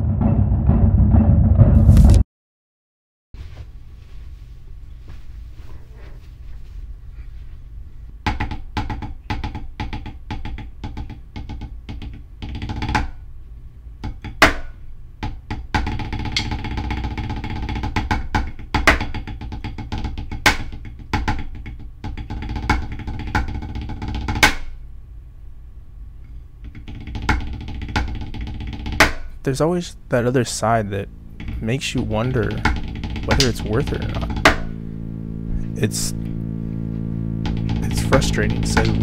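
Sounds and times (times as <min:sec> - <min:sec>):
snare drum rolls: 0:00.0 - 0:02.2, 0:28.0 - 0:34.8, 0:37.4 - 0:39.0.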